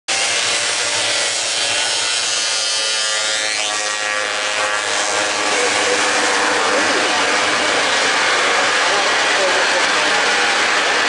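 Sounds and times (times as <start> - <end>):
snowmobile engines at high revs: 0.1 - 11.0.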